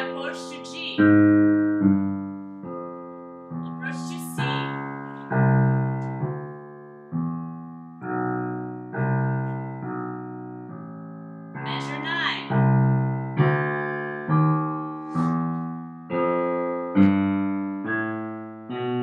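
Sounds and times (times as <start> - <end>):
piano chords in low register: 0.0 - 19.0.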